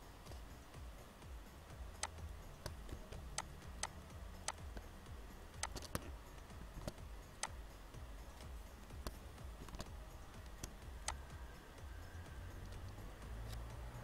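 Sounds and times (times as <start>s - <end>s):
low steady hum: 0.0s - 14.0s
mouse and keyboard clicks: 2.0s - 4.9s, 5.6s - 7.6s, 8.4s - 11.2s.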